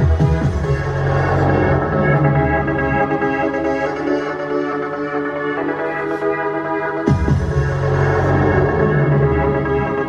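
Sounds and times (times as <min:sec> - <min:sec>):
electronic music from vinyl record: 0:00.0 - 0:10.0.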